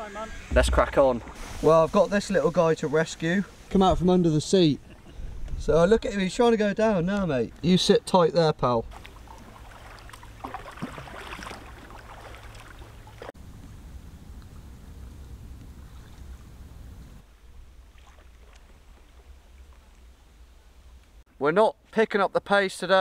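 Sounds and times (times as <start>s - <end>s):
paddles splashing in water: 8.8s - 13.4s, 17.7s - 20.1s.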